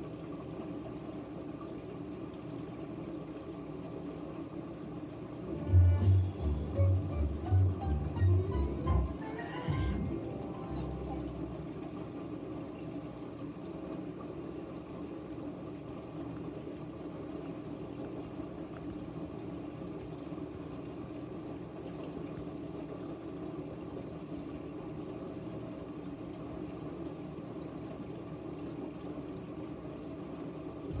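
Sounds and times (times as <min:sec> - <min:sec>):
low hum: 0:05.4 - 0:12.8.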